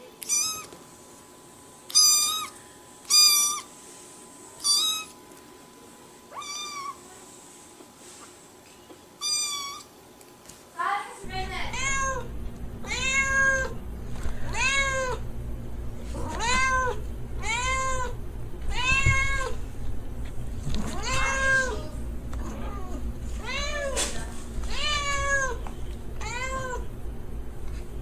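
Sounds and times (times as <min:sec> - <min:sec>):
cat meowing: 0:00.2 - 0:00.7, 0:04.6 - 0:05.2, 0:06.3 - 0:07.0, 0:09.2 - 0:09.9, 0:11.7 - 0:13.8, 0:14.5 - 0:15.2, 0:16.2 - 0:19.6, 0:20.8 - 0:21.9, 0:24.7 - 0:25.6, 0:26.2 - 0:26.9.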